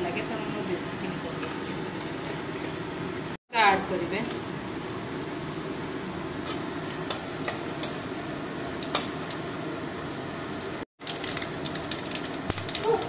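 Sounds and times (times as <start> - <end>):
seeds sizzling and popping in oil: 3.9 - 13.0.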